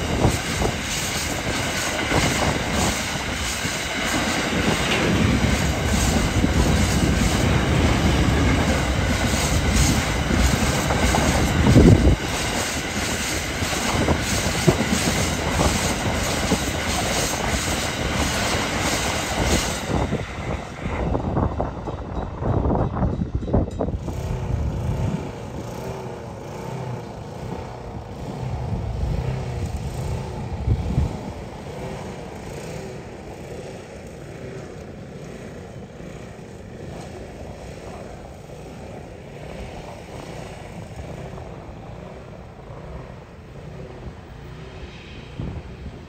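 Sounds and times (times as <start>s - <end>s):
locomotive engine noise: 0.0s - 46.0s
train wheels rolling: 0.0s - 46.0s.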